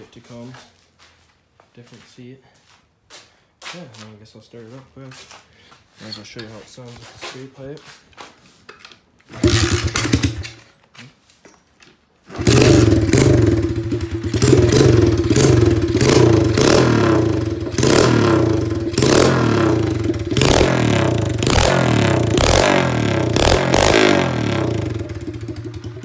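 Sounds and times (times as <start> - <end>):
motorbike engine starting and running: 9.2 - 10.8, 12.2 - 26.0.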